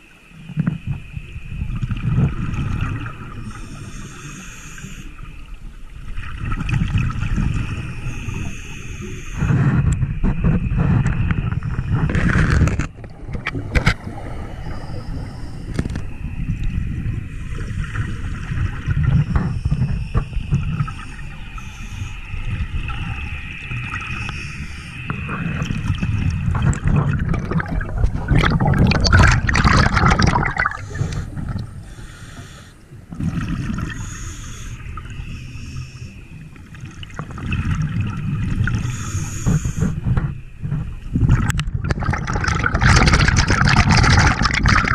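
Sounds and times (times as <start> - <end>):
bubbles gurgling underwater: 0.0 - 3.7, 5.2 - 8.6, 22.5 - 32.0, 32.9 - 34.2, 36.5 - 44.9
diver breathing through regulator: 3.4 - 5.2, 7.6 - 10.2, 27.6 - 33.1, 33.8 - 36.2, 38.7 - 40.3.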